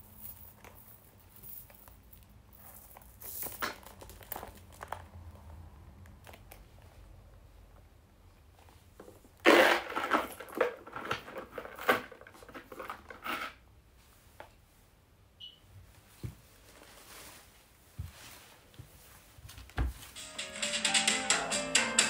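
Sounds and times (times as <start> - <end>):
bag rustling with clicks and knocks: 0.1 - 5.5.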